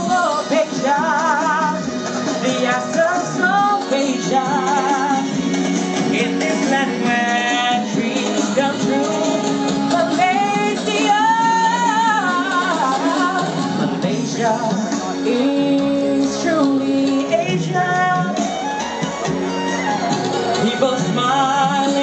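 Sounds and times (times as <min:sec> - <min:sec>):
man singing with vibrato: 0:00.0 - 0:18.5, 0:20.5 - 0:22.0
instrumental backing music: 0:00.0 - 0:22.0.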